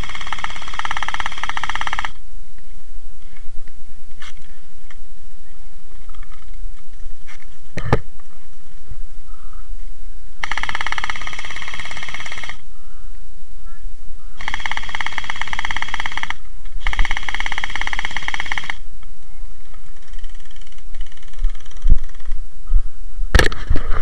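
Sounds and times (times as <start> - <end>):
gel blaster full auto bursts: 0.0 - 2.2, 10.4 - 12.6, 14.4 - 18.8, 19.8 - 22.4.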